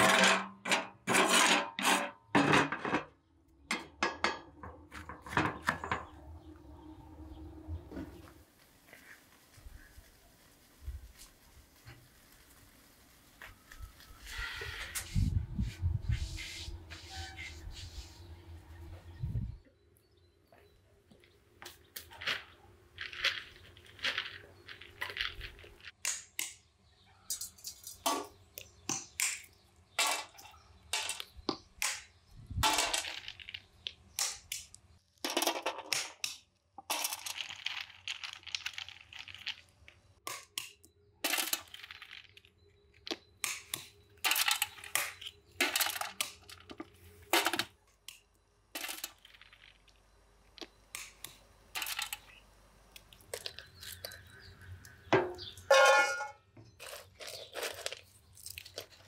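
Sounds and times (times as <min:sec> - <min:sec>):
walnuts cracking with stone: 0:27.9 - 0:55.6, 0:56.7 - 0:59.0.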